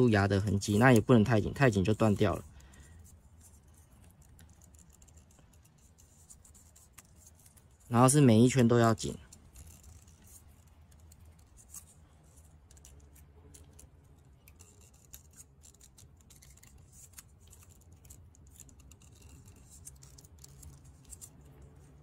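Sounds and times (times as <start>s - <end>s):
low steady hum: 0.0s - 22.0s
tape scratching and crinkling: 0.0s - 22.0s.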